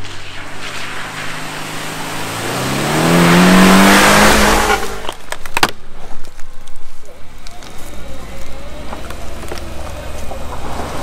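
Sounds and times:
car engine revving passing by: 0:00.0 - 0:05.1, 0:09.2 - 0:11.0.

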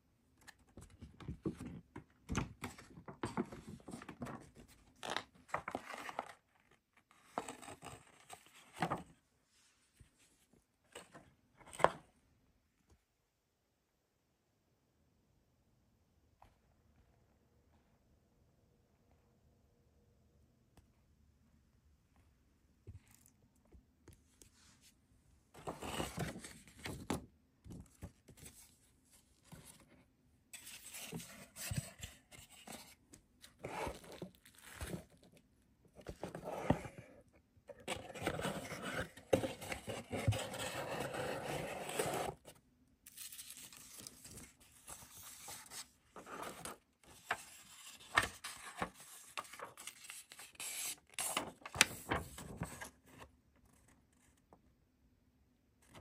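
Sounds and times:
paper and card rustling: 0:30.6 - 0:35.3, 0:37.8 - 0:54.0.

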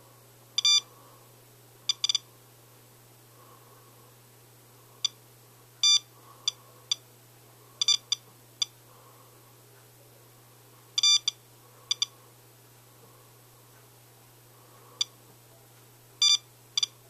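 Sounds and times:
dosimeter short electronic beeps: 0:00.6 - 0:00.8, 0:01.9 - 0:02.2, 0:05.8 - 0:06.1, 0:07.8 - 0:08.7, 0:11.0 - 0:12.1, 0:16.2 - 0:17.0.

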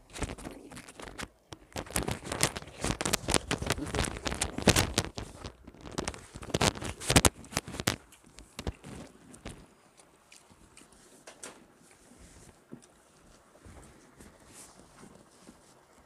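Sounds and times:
fingers squishing rice: 0:00.0 - 0:16.0
wet chewing clicks and smacks: 0:00.1 - 0:12.0.

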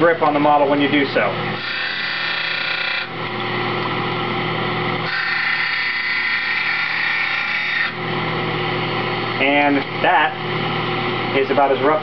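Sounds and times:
trimmer motor and grinding wheel: 0:00.2 - 0:03.6, 0:04.9 - 0:08.0.

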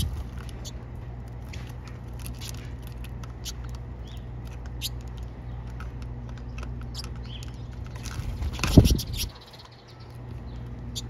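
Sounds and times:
birds chipping and calling: 0:00.0 - 0:11.0
low steady hum: 0:00.0 - 0:11.0.

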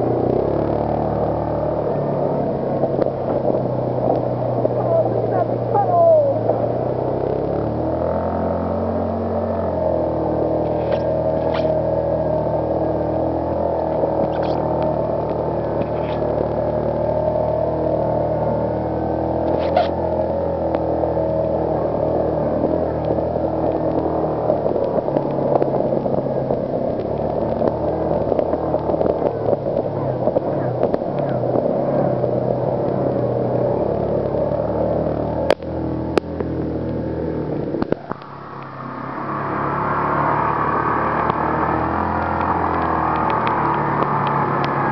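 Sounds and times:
off-road vehicle engine running: 0:00.0 - 0:44.9.

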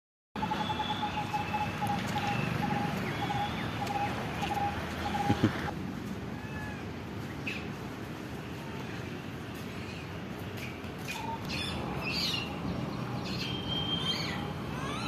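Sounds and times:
bird repeating low note: 0:00.4 - 0:05.5
birds chirping: 0:00.4 - 0:05.7, 0:09.8 - 0:15.0.

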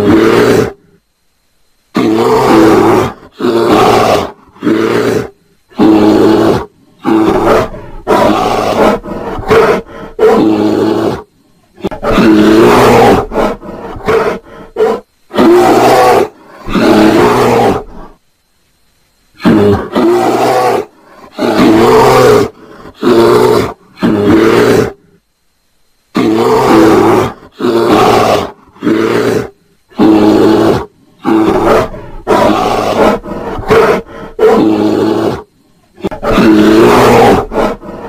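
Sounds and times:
bear roaring and growling: 0:00.0 - 0:00.9, 0:01.9 - 0:18.2, 0:19.4 - 0:25.1, 0:26.1 - 0:38.0.

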